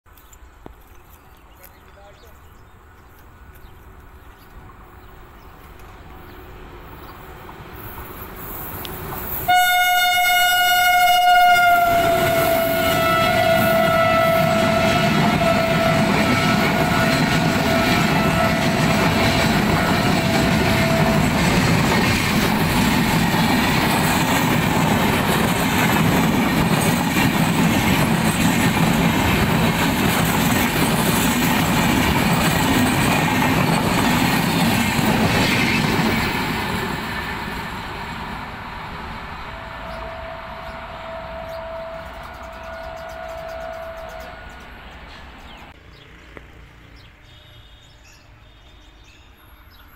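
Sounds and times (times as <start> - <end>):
train wheels on rails: 0.1 - 47.2
locomotive horn: 9.4 - 21.4, 39.4 - 44.6.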